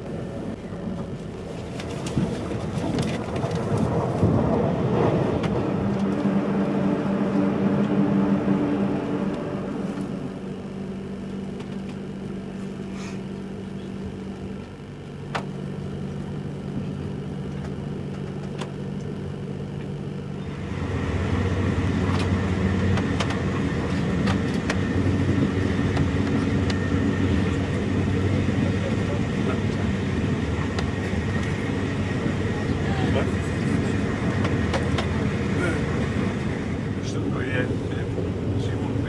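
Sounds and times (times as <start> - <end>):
train wheels rumbling on rail: 0.0 - 10.6, 20.4 - 39.0.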